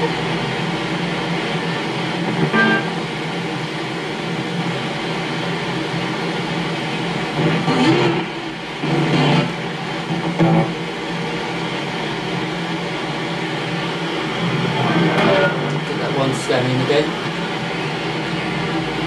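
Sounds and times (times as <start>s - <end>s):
snatches of broadcast audio: 0.0s - 3.6s, 6.1s - 19.0s
radio static hiss: 0.0s - 19.0s.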